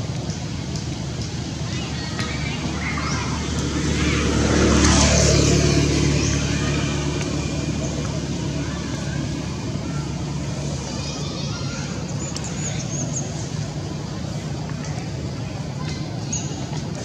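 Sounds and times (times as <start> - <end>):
vehicle passing by: 1.8 - 14.3.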